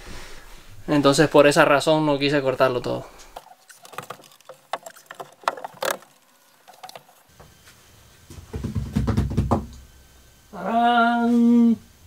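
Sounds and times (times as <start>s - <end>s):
wood knocking on wood: 3.4s - 7.3s.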